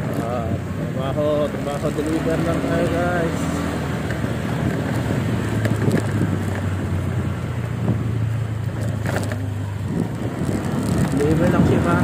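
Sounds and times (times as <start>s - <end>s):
motorcycle engine running: 0.0s - 12.0s
wind noise on microphone: 4.2s - 12.0s.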